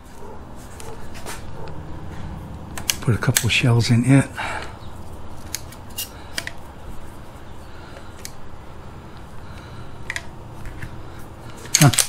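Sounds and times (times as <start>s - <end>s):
shotgun shells clicking into magazine: 11.6s - 12.0s.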